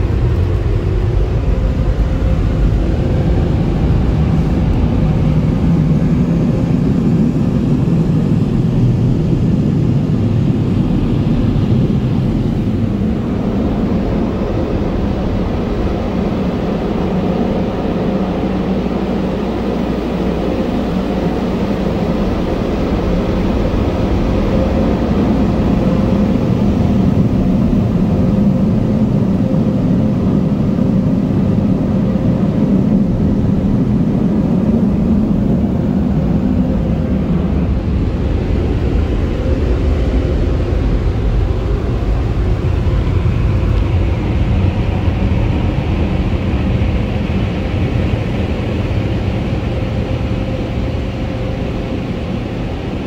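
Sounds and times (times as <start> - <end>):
dryer blowers rushing air: 0.0 - 53.0
steady hum: 0.0 - 53.0.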